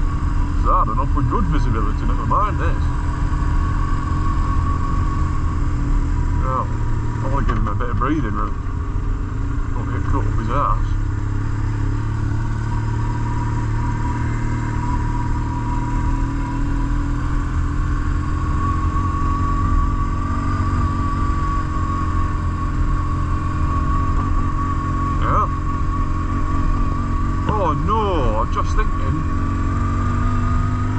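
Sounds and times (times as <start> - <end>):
motorcycle engine rumbling: 0.0 - 30.9.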